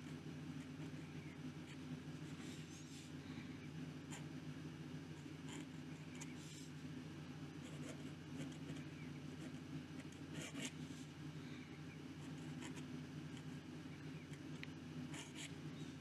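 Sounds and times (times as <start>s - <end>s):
steady low hum: 0.0s - 16.0s
pen nib scratching paper: 15.1s - 15.6s.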